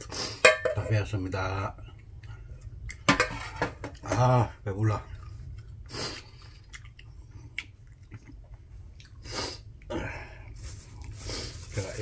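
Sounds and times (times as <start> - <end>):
person chewing food: 1.8 - 3.1, 5.1 - 10.0.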